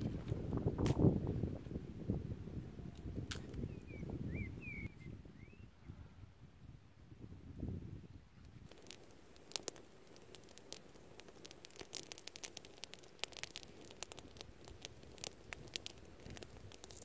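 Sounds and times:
campfire crackling and popping: 0.0s - 2.2s, 2.9s - 4.8s, 8.4s - 17.0s.

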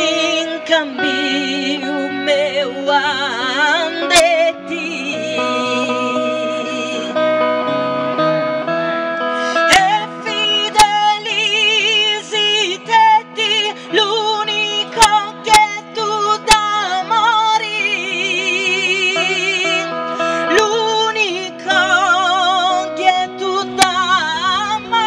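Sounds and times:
woman singing folk melody: 0.0s - 7.7s, 9.3s - 25.0s
held accompaniment chords: 0.0s - 12.1s.

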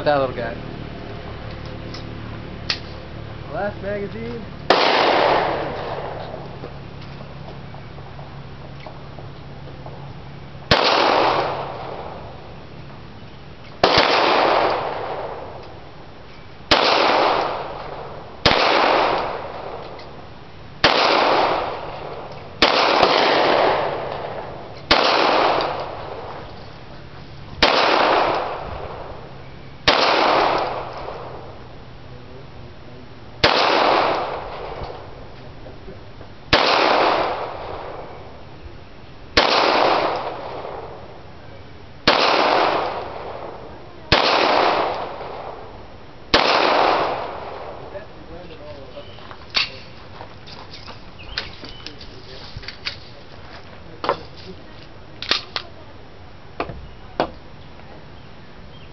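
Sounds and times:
pistol shots with echo: 4.7s - 6.6s, 10.7s - 12.5s, 13.8s - 15.8s, 16.6s - 20.2s, 20.8s - 26.8s, 27.6s - 31.7s, 33.4s - 35.2s, 36.5s - 38.4s, 39.3s - 41.2s, 42.0s - 50.2s.

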